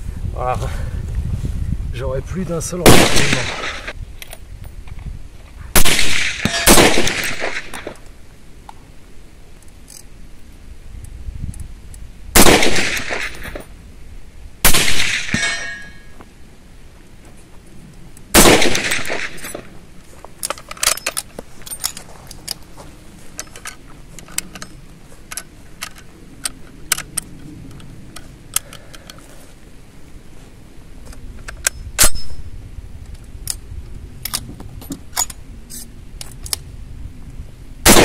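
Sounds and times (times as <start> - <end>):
rifle shots echoing: 2.8 - 3.9, 5.8 - 8.0, 12.4 - 13.7, 14.6 - 16.0, 18.3 - 19.7
rifle handling clicks: 20.4 - 22.6, 23.3 - 29.2, 34.2 - 36.7.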